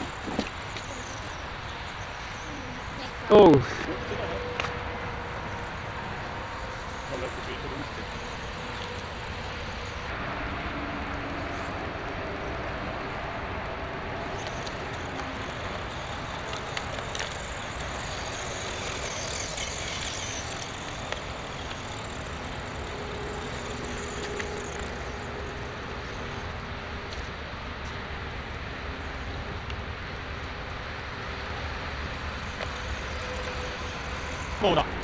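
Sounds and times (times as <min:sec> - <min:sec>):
electric motor whine: 0:00.0 - 0:27.9, 0:31.0 - 0:35.0.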